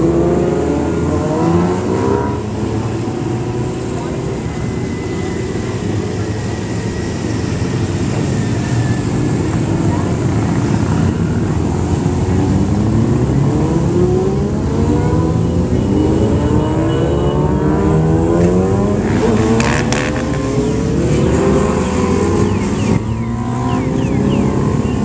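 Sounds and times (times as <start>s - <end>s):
motorcycles accelerating past: 0.0s - 25.0s.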